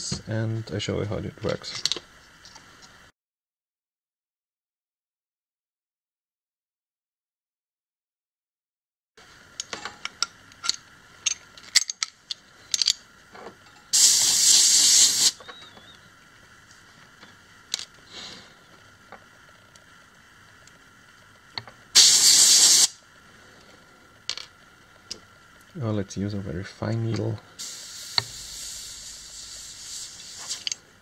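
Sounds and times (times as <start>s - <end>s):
clicks of fittings being handled: 9.6s - 13.5s
compressed air blow gun hissing: 13.9s - 15.5s, 21.9s - 23.0s, 27.6s - 30.8s.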